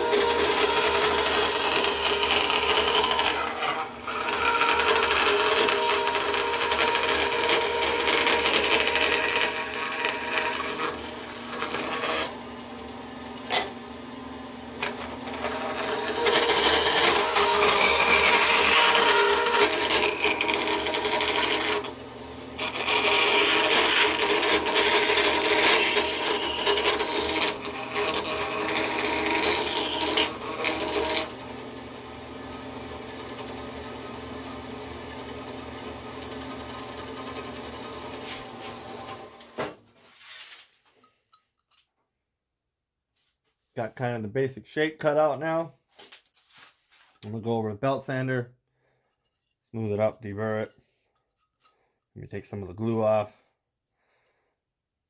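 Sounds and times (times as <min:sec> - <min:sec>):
bandsaw cutting metal: 0:00.0 - 0:39.8.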